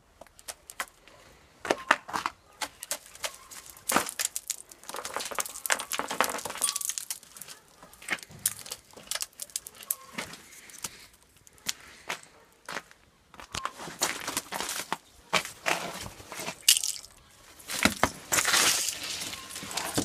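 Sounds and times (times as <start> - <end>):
ice cracking and crunching: 2.6 - 11.8, 14.0 - 20.0
ice shards clinking on concrete: 2.8 - 11.1, 16.4 - 20.0.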